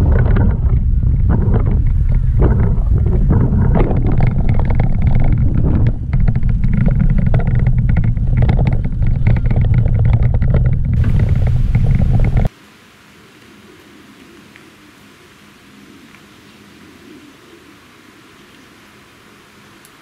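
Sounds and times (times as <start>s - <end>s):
small rattling knocks: 0.0s - 12.5s
wind rumble on microphone: 0.0s - 12.5s
bike tyres on rough asphalt: 0.0s - 12.6s.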